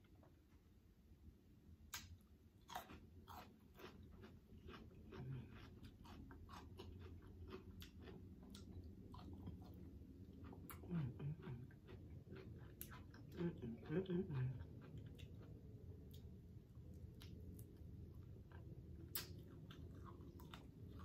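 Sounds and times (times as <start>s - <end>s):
chewing food mouth smacks: 1.9s - 9.8s, 18.5s - 21.0s.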